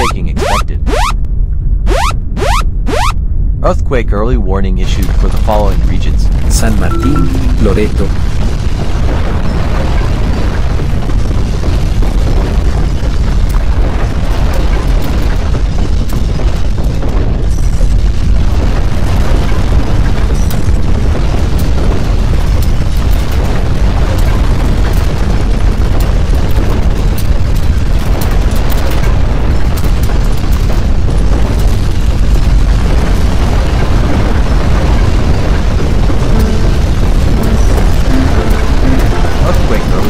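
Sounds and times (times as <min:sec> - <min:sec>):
earthquake rumble: 0:00.0 - 0:40.0
crackling and rattling: 0:08.1 - 0:38.6.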